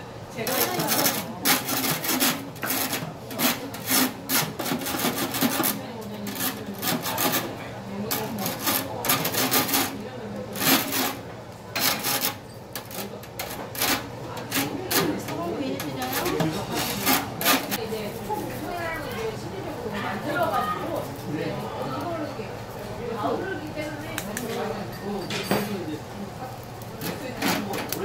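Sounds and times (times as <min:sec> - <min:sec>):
metal tongs scraping a wire grill: 0:00.4 - 0:11.2, 0:11.8 - 0:17.8, 0:26.8 - 0:28.0.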